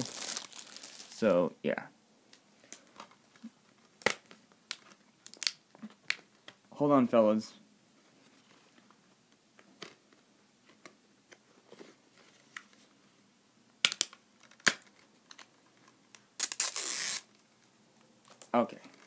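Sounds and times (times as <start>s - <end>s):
plastic tearing and crinkling: 0.0s - 1.2s, 16.4s - 17.4s.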